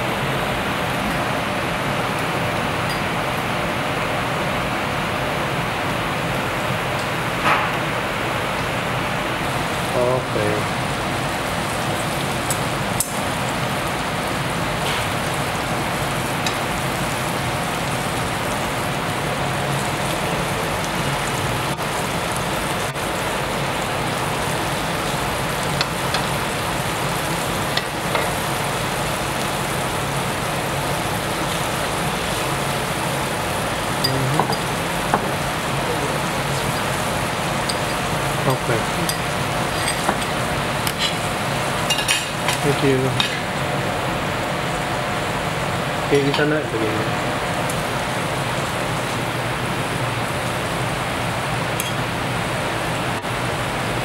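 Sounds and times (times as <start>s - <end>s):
food sizzling on a griddle: 9.3s - 46.0s
metal tongs clinking: 37.6s - 38.0s.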